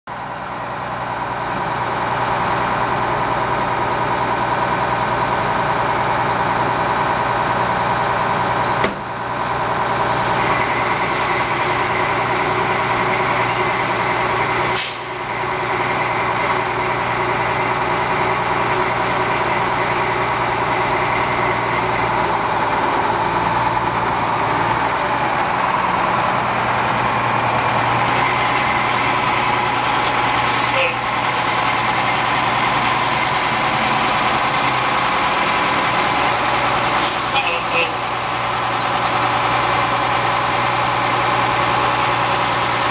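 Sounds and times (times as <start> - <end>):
diesel engine running: 0.1 - 42.9.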